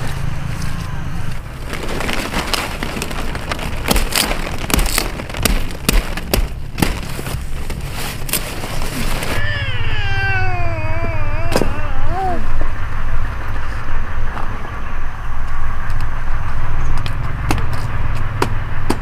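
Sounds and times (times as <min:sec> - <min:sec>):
cauliflower stalks snapping: 0:01.4 - 0:09.4
small child whining: 0:09.4 - 0:12.6.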